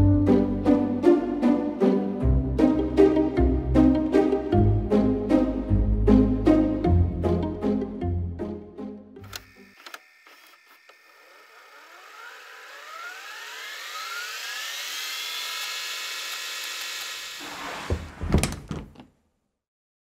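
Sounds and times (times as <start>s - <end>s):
rising tones riser: 10.1s - 17.8s.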